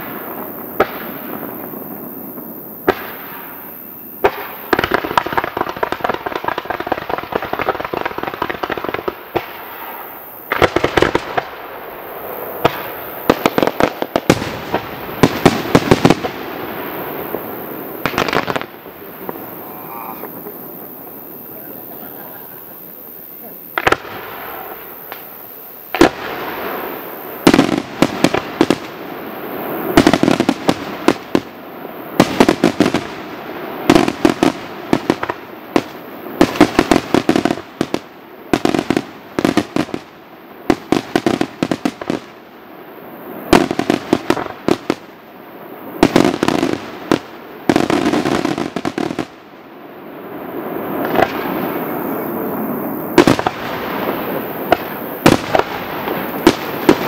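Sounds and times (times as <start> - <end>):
fireworks bursting with sharp bangs: 0.0 - 57.0.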